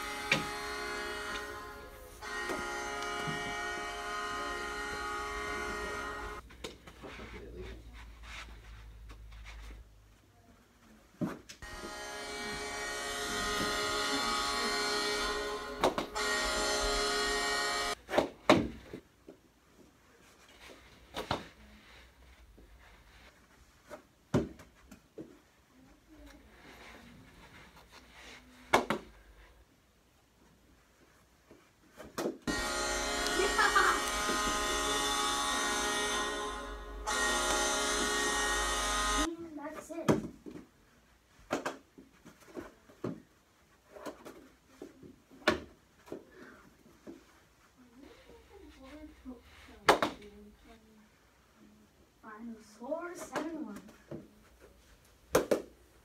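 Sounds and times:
goal horn over speaker: 0.0s - 6.4s, 11.6s - 18.0s, 32.5s - 39.3s.

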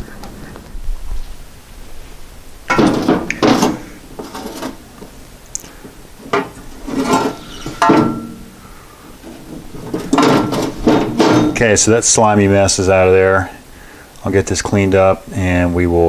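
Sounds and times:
metal tools clanking and scraping: 2.7s - 4.8s, 6.2s - 8.6s, 9.2s - 11.7s.

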